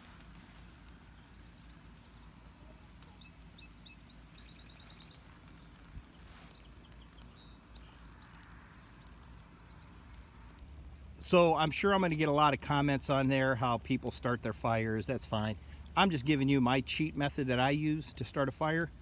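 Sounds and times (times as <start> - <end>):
distant birds trilling: 0.0 - 12.2, 12.9 - 19.0
low steady rumble: 0.0 - 19.0.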